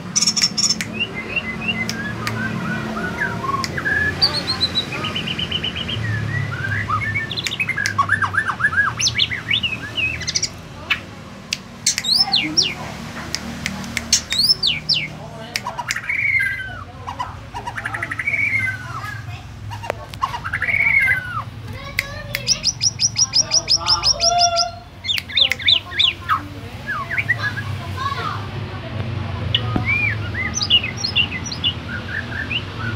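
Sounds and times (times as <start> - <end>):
bird singing: 0.0 - 11.1, 11.8 - 13.0, 13.9 - 27.8, 29.5 - 32.9
bird singing whistled notes: 0.2 - 10.6, 29.5 - 32.9.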